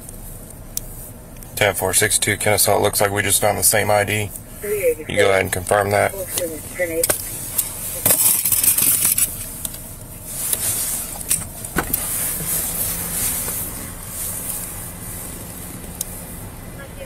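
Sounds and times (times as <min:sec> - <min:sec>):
car cabin hum: 0:00.0 - 0:17.0
equipment clicks and knocks: 0:11.2 - 0:12.0.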